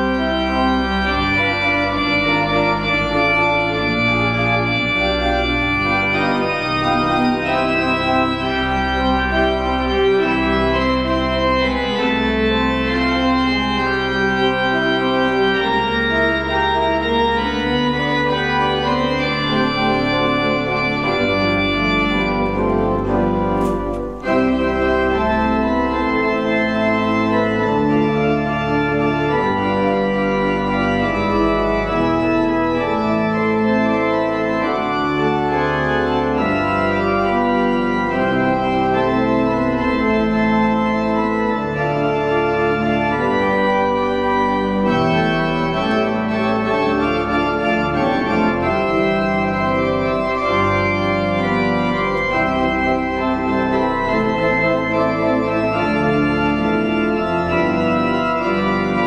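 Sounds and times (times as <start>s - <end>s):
organ chords: 0.0s - 59.0s
click: 22.3s - 24.4s.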